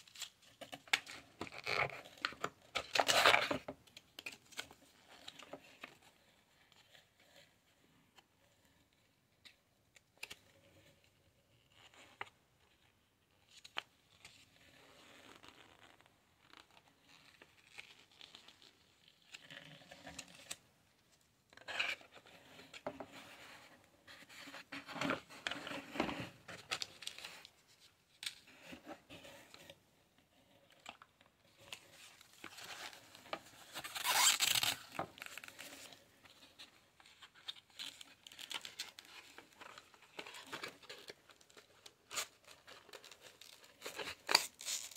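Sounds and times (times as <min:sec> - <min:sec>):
rustling paper and cardboard: 0:21.6 - 0:44.9.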